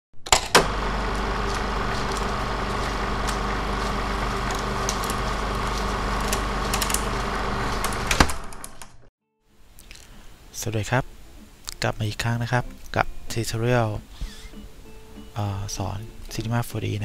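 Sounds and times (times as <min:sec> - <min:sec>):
scattered clicks: 0:00.3 - 0:09.0
machine-like whir: 0:00.3 - 0:09.1
low hum: 0:00.3 - 0:11.7.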